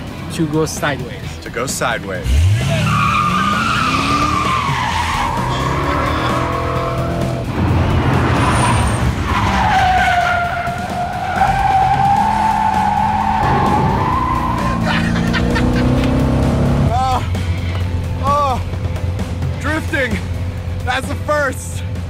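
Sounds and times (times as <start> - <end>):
car engine revving: 2.2 - 22.0
tyres squealing: 2.3 - 7.3, 8.1 - 18.7.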